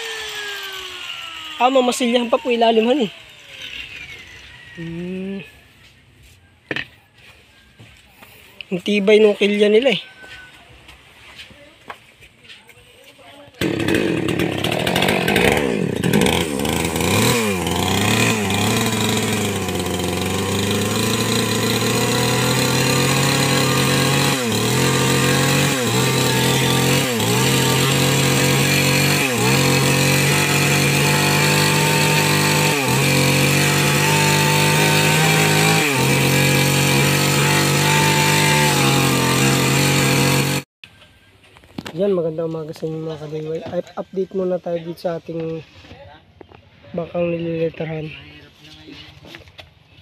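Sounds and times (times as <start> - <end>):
chainsaw cutting wood: 0.0 - 5.4, 13.5 - 40.7.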